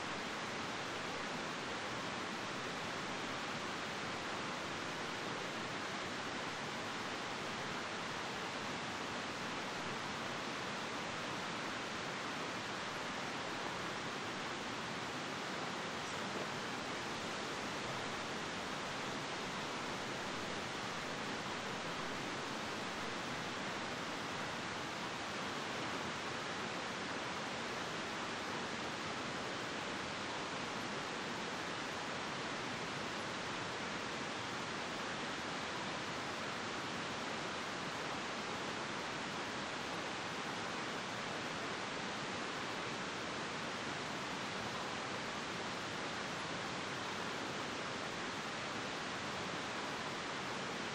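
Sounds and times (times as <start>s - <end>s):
steady hiss: 0.0s - 50.9s.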